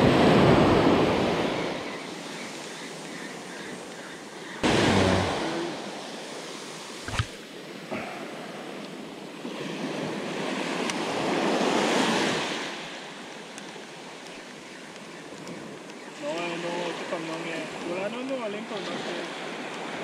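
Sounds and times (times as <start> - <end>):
waves washing on sandy beach: 0.0 - 20.0.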